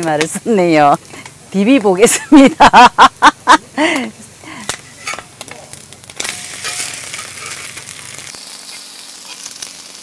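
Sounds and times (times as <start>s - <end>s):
eggs sizzling in oil: 0.0s - 10.0s
spatula scraping a pan: 4.8s - 5.4s, 6.2s - 7.9s.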